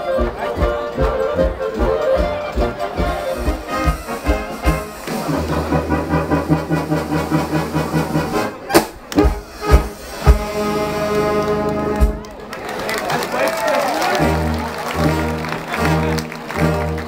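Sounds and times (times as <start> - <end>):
brass band playing: 0.0 - 13.2, 13.9 - 17.0.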